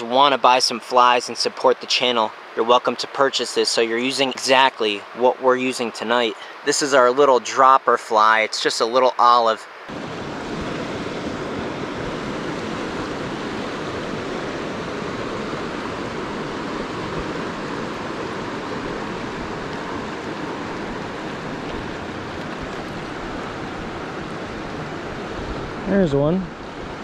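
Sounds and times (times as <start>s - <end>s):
river rushing over rocks: 9.8s - 27.0s.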